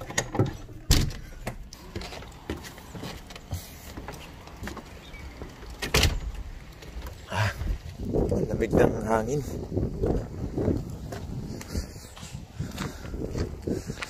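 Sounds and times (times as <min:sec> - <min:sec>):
footsteps on wooden deck: 0:00.0 - 0:14.0.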